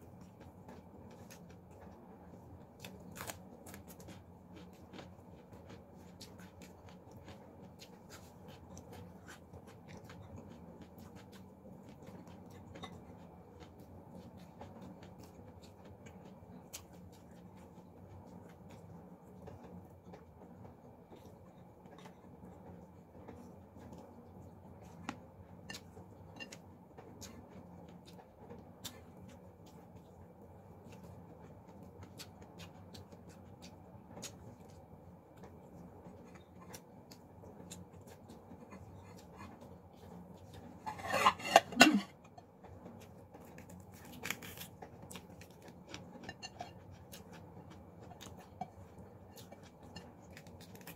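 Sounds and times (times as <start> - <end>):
faint steady hum: 0.0 - 50.9
chewing: 0.2 - 20.3, 21.0 - 50.9
fried chicken crackling when torn: 2.8 - 4.0, 43.4 - 45.8.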